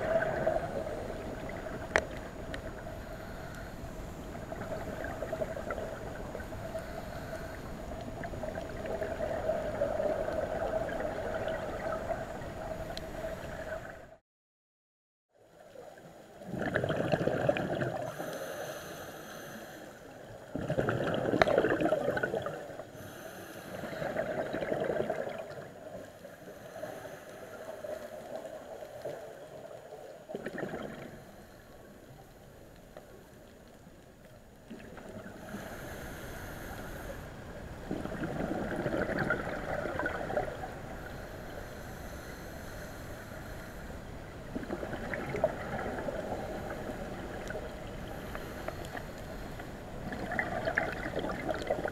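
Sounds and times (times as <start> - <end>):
steady underwater hum: 0.0 - 14.2, 15.3 - 51.9
regulator bubbles: 16.4 - 18.1, 20.5 - 22.7, 24.0 - 25.7, 37.8 - 40.8, 44.5 - 47.8, 50.0 - 51.9.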